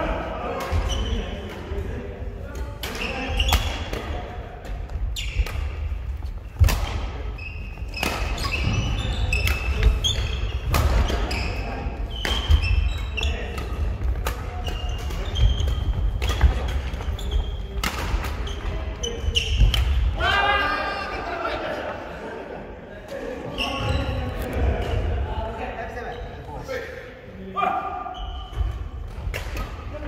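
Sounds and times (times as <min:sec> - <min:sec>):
sneakers squeaking: 0:00.6 - 0:01.5, 0:02.6 - 0:20.1, 0:23.4 - 0:25.2, 0:27.9 - 0:30.0
rackets striking shuttlecock: 0:07.9 - 0:11.3.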